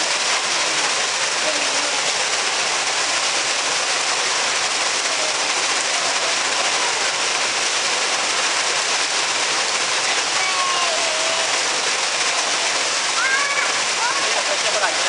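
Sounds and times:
water splashing into stone pool: 0.0s - 15.0s.

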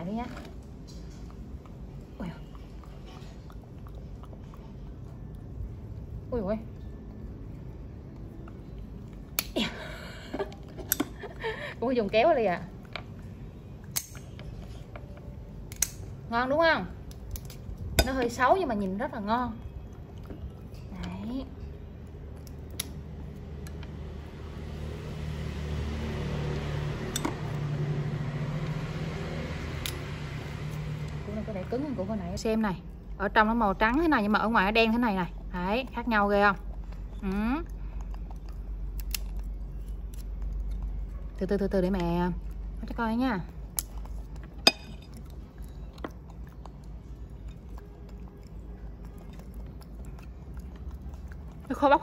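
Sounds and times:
low mechanical hum: 0.0s - 52.0s
shell cracking while peeled by hand: 9.2s - 9.6s, 22.4s - 23.9s, 38.0s - 41.0s, 43.6s - 44.7s.

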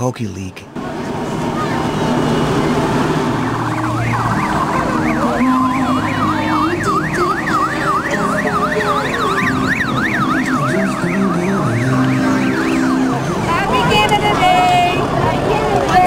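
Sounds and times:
electronic siren yelping: 1.5s - 15.0s.

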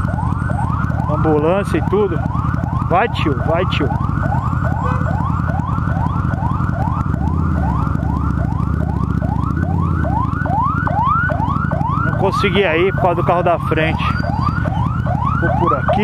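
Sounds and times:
ambulance siren yelping: 0.0s - 16.0s
motorcycle engine idling: 0.0s - 16.0s.

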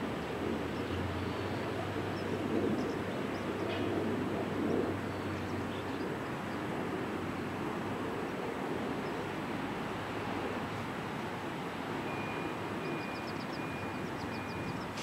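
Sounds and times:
small birds chirping: 13.0s - 15.0s.

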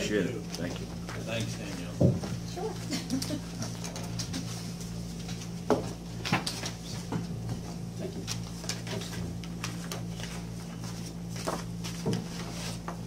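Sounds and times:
low electrical hum: 0.0s - 13.0s
paper rustling: 8.1s - 13.0s.

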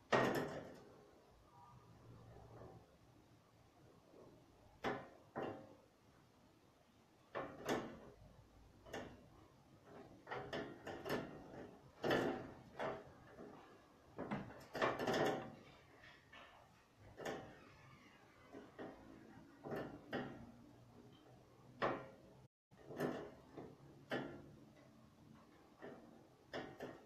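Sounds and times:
knocks and clunks of handled objects: 7.3s - 17.6s, 18.4s - 27.0s.

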